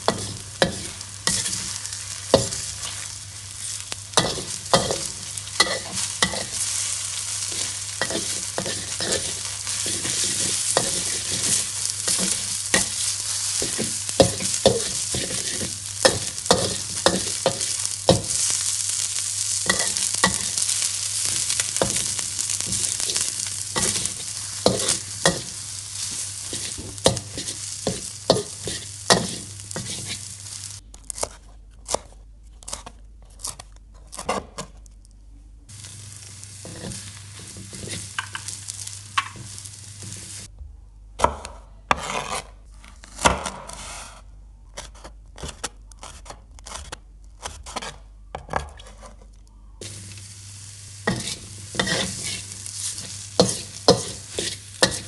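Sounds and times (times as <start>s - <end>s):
food sizzling in a wok: 0.0s - 30.8s, 35.7s - 40.5s, 49.8s - 55.0s
metal spatula scraping wok: 0.0s - 30.8s, 36.4s - 40.5s, 51.0s - 55.0s.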